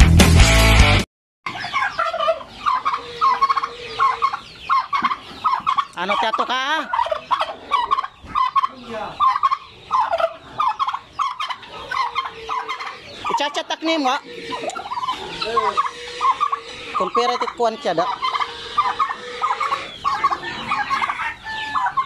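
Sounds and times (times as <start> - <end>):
poultry calling: 1.5 - 22.0
turkey gobbling: 1.5 - 22.0.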